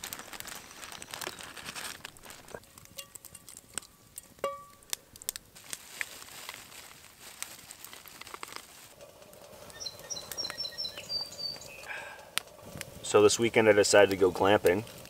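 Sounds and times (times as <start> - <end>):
light clicks and crackles: 0.0 - 15.0
metallic ping: 4.4 - 4.8
bird chirping high notes: 9.7 - 11.9.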